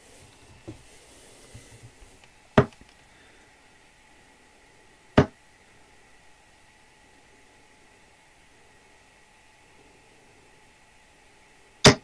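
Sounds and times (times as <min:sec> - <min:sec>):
darts thudding into dartboard: 0:05.2 - 0:05.4.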